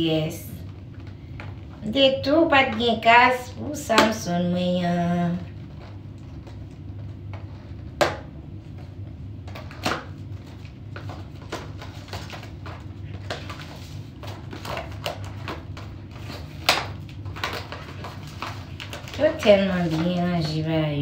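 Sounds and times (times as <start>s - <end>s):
steady low hum: 0.0s - 21.0s
plastic wrapping crinkling: 8.7s - 21.0s.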